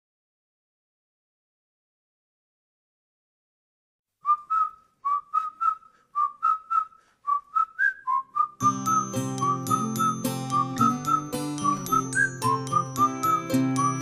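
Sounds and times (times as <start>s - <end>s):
whistled tune: 4.2s - 14.0s
backing music with chords and bass: 8.6s - 14.0s.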